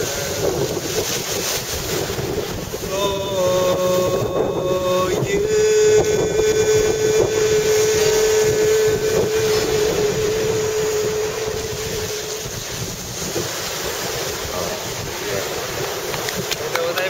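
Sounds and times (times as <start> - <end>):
breaking surf: 0.0 - 17.0
wind buffeting microphone: 0.0 - 17.0
long held musical note: 2.9 - 13.5.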